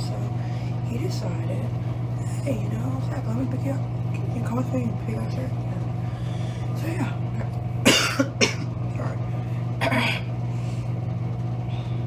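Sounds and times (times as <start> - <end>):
steady low hum: 0.0 - 12.0
person coughing: 7.8 - 8.8, 9.8 - 10.3.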